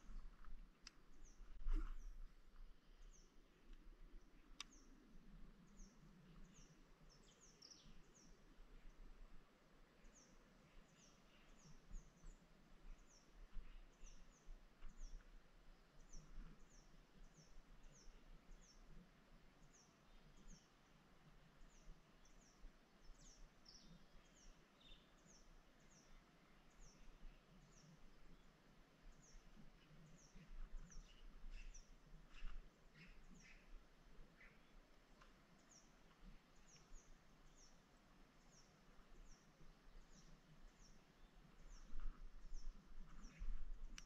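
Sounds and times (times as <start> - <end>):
bird chirping: 2.9 - 9.2, 10.0 - 19.0, 21.6 - 44.0.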